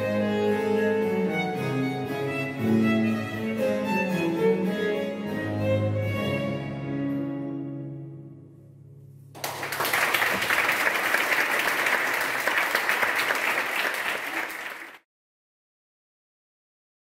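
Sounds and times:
audience applause: 9.4 - 15.0.

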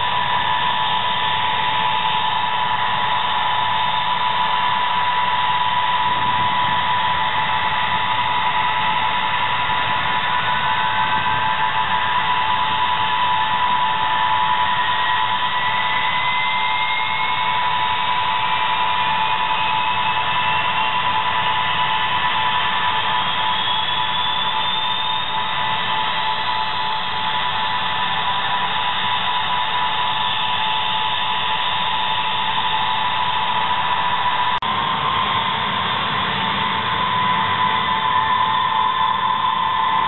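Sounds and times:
engine spooling up whine: 0.0 - 40.0
jet engines whining: 0.0 - 40.0.

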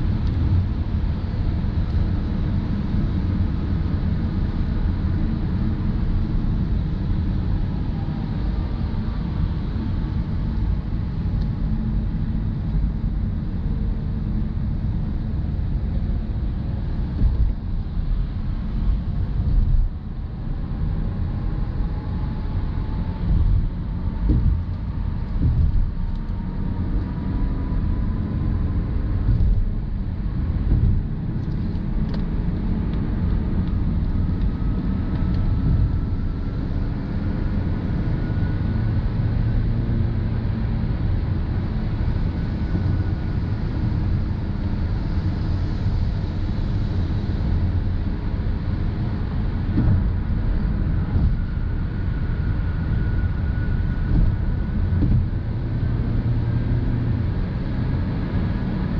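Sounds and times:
car cabin road noise: 0.0 - 58.9
soft thumps from road: 17.1 - 17.8, 23.2 - 26.3, 29.2 - 29.9, 30.6 - 32.3, 49.7 - 51.6, 53.8 - 55.4.

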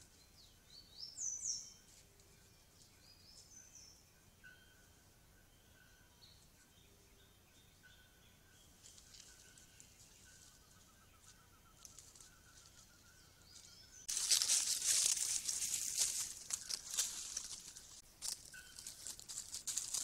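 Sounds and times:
rustling of dry leaf litter: 11.2 - 20.0.

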